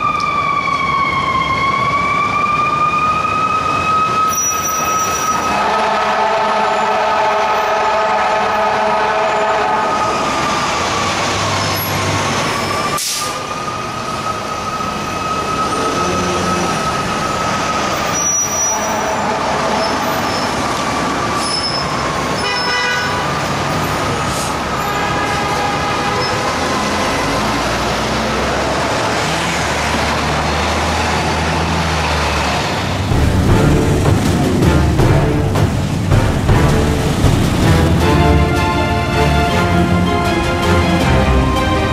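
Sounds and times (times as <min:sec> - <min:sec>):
city traffic: 0:00.0 - 0:41.9
fire truck siren: 0:00.0 - 0:41.9
air horn blast: 0:04.3 - 0:11.2, 0:18.1 - 0:21.8, 0:22.4 - 0:23.5, 0:24.5 - 0:27.8.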